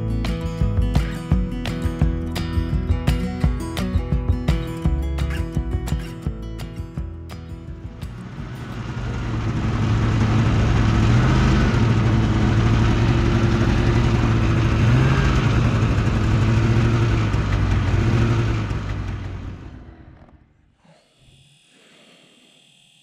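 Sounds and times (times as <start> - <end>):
rushing noise of travel: 7.7 - 20.4
snowmobile engine running: 8.1 - 20.4.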